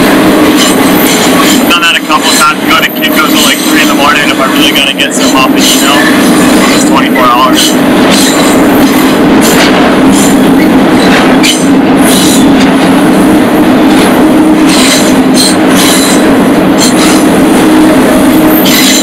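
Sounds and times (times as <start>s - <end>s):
freight train rolling: 0.0s - 19.0s
high-pitched rattles and screeches: 14.6s - 17.2s, 18.6s - 19.0s.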